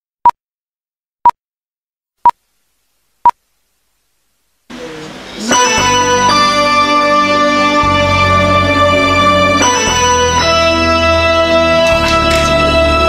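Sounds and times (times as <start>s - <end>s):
music: 4.7s - 13.0s.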